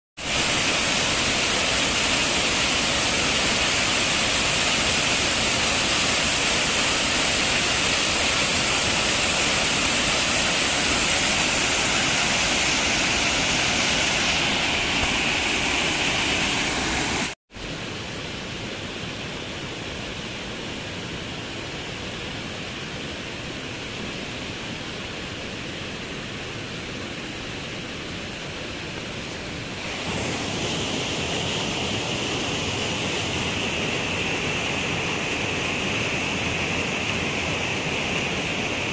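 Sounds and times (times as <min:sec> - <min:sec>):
small cascade into river pool: 0:00.2 - 0:18.9, 0:28.9 - 0:38.9.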